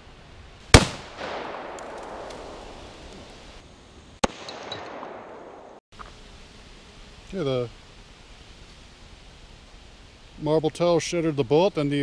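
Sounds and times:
sharper quieter gunshot crack: 0.7s - 2.8s
rifle shot with echo: 0.7s - 2.9s, 4.2s - 5.8s.

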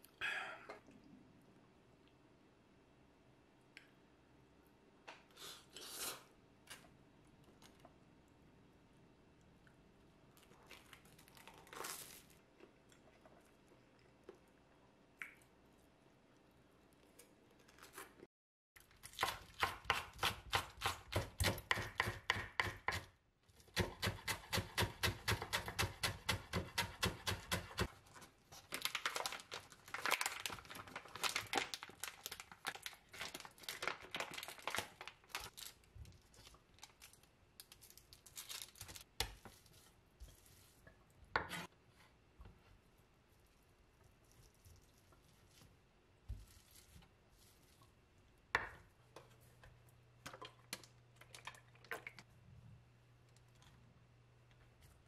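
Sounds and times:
knife chopping on wooden board: 19.6s - 23.1s, 23.8s - 27.9s.

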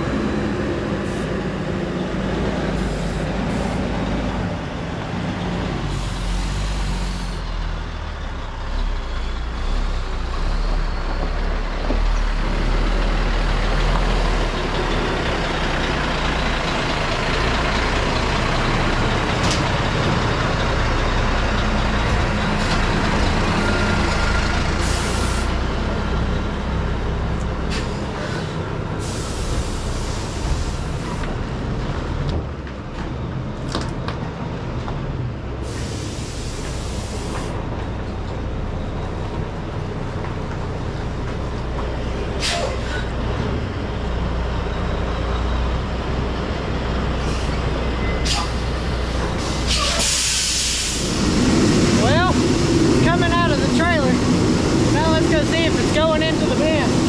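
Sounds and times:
truck diesel engine running: 0.0s - 32.6s, 34.6s - 57.0s
short air hisses: 35.6s - 37.5s, 42.4s - 42.9s, 49.4s - 51.2s.

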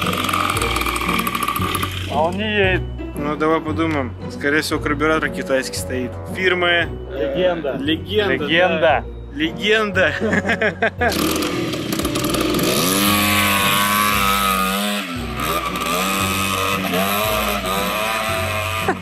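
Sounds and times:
scooter engine revving: 0.0s - 2.2s, 11.0s - 19.0s.

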